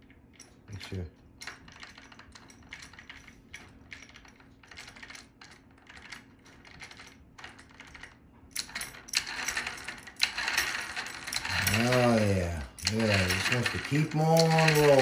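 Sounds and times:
gear spinning clatter: 0:07.4 - 0:15.0.

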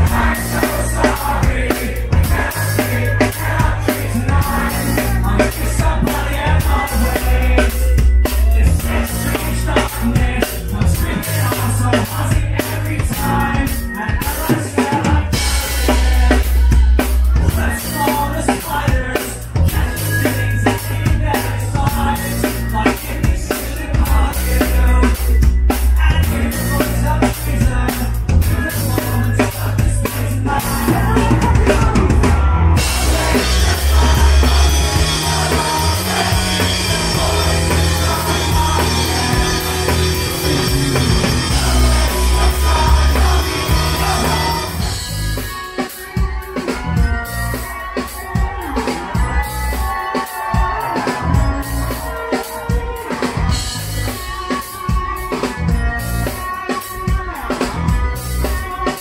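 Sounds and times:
pop-punk band playing live: 0:00.0 - 0:59.0.

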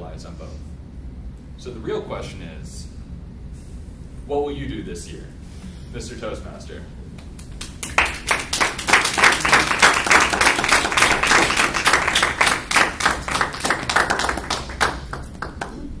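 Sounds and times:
audience applauding: 0:07.5 - 0:15.9.

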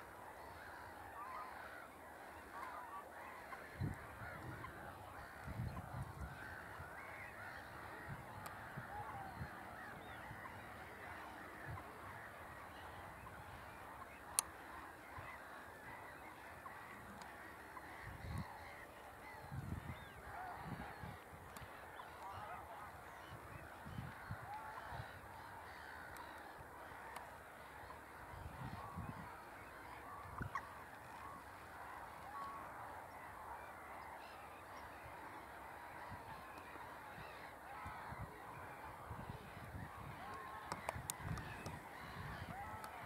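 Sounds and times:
distant waterfowl calling: 0:00.0 - 0:43.0.

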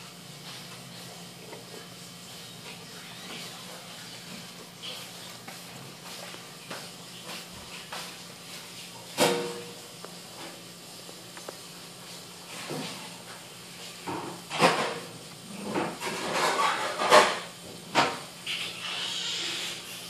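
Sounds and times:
tortoise scraping on newspaper: 0:15.5 - 0:17.5, 0:18.5 - 0:20.0.

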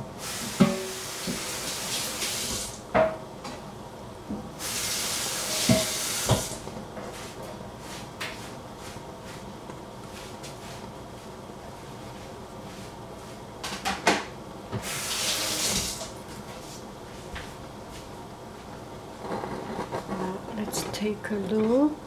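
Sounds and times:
tap running into sink: 0:05.6 - 0:06.6.

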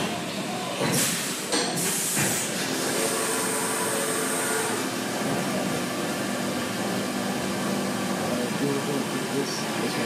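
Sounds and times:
hiss of coolant spray: 0:00.9 - 0:04.4
milling machine cutting: 0:02.5 - 0:08.6.

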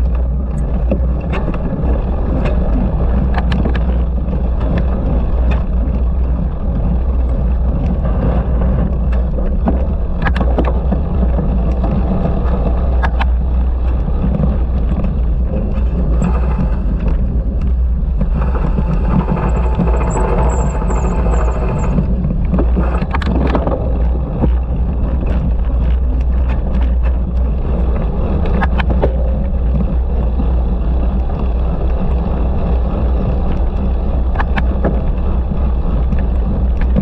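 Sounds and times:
wind and tyres rumbling: 0:00.0 - 0:37.0
bike clicks and knocks: 0:07.8 - 0:27.5, 0:34.3 - 0:37.0.

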